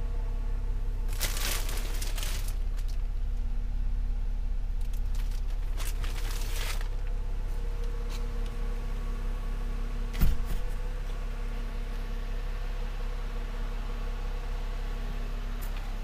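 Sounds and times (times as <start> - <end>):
steady low hum: 0.0 - 16.0
plastic wrapping crinkling: 1.1 - 3.0, 4.8 - 7.1.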